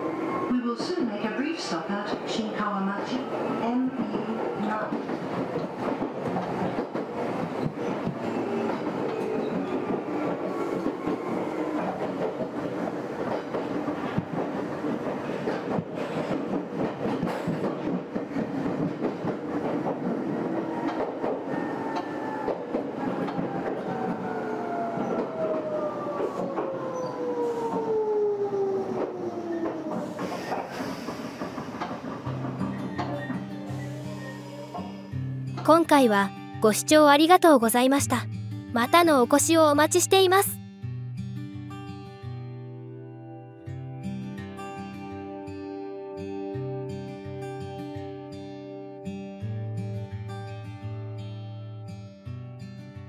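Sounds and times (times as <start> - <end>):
train wheels clacking over rail joints: 4.7 - 24.2, 29.6 - 33.4.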